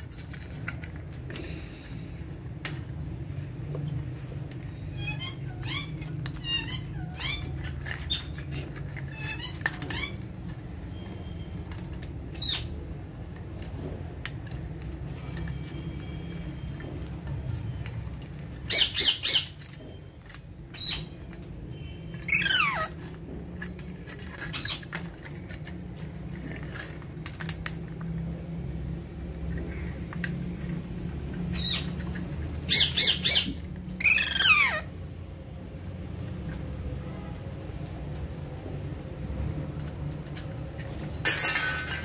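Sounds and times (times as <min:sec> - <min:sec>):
parakeets squawking: 0:04.9 - 0:10.2, 0:18.6 - 0:19.6, 0:22.3 - 0:23.0, 0:31.5 - 0:32.0, 0:32.6 - 0:35.0.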